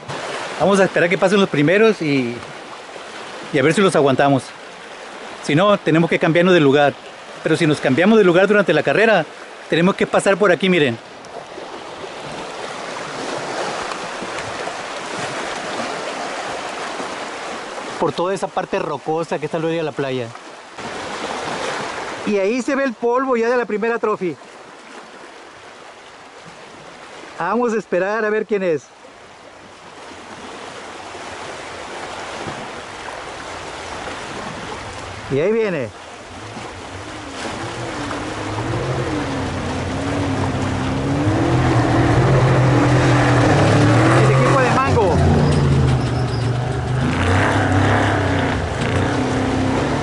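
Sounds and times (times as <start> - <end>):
small waves washing on rocks: 0.0 - 22.8, 29.6 - 50.0
surf: 0.0 - 50.0
wind: 0.0 - 50.0
truck engine drone: 36.4 - 50.0.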